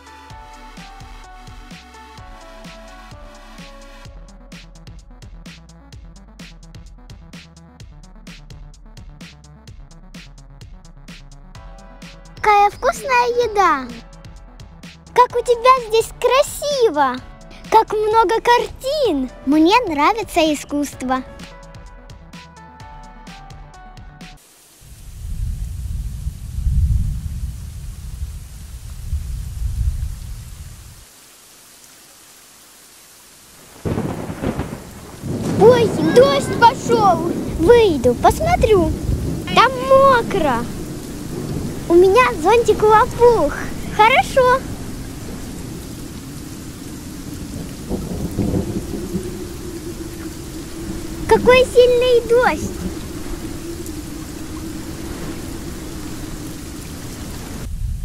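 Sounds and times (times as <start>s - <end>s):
rain hissing: 0.0s - 5.0s, 11.0s - 58.0s
thunder rumbling: 24.8s - 31.0s, 33.6s - 58.0s.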